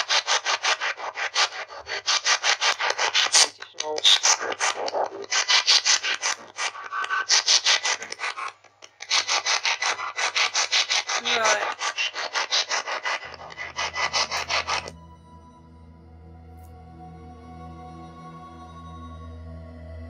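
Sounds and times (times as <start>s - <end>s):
rapid bursts of radio static: 3.1s - 6.0s.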